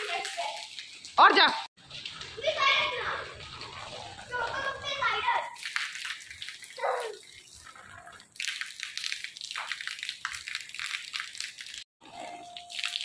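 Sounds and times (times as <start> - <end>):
rain splashing on tiled roof: 0.0 - 13.0
rain pattering on umbrella: 1.8 - 13.0.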